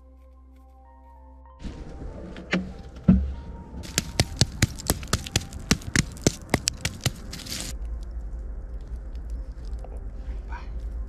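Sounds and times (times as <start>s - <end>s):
low steady rumble: 1.6s - 11.0s
campfire crackling and popping: 3.8s - 7.8s.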